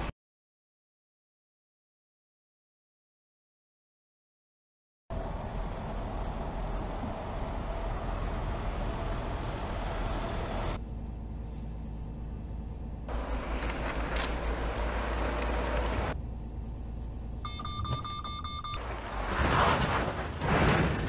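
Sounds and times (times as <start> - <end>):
truck engine and tyre noise: 5.1 - 21.0.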